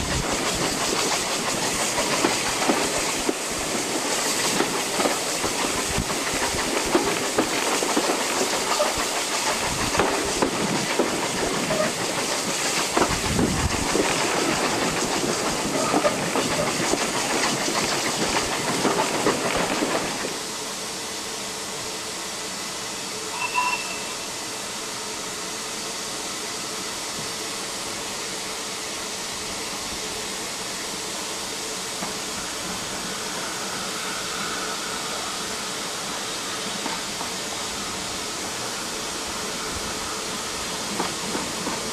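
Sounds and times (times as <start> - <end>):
train wheels clattering over rail joints: 0.0 - 20.4, 36.7 - 37.6, 39.4 - 41.9
steady hiss of steam: 0.0 - 41.9.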